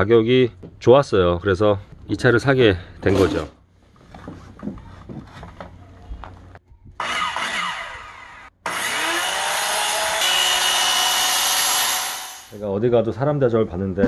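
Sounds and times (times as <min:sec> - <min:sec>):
circular saw cutting wood: 0:07.0 - 0:12.6.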